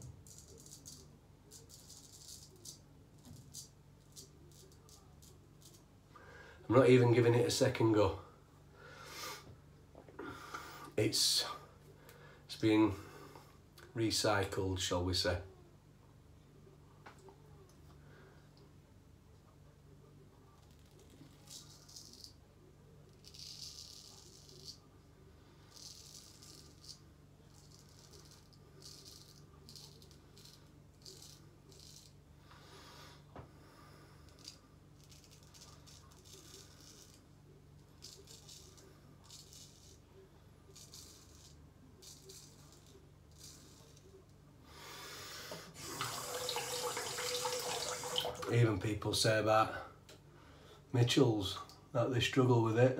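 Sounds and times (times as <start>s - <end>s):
water tap running: 45.8s - 48.5s.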